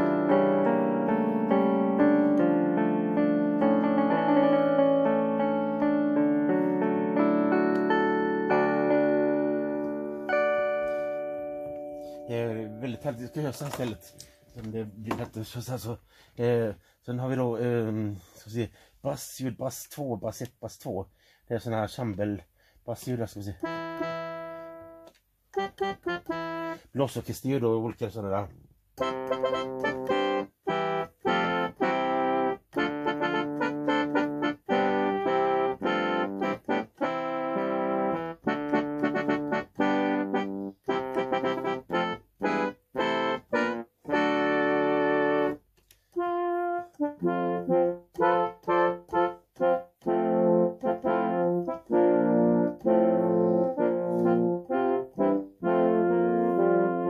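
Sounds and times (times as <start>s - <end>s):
electronic keyboard melody: 0.0s - 15.3s, 23.5s - 27.1s, 28.9s - 57.0s.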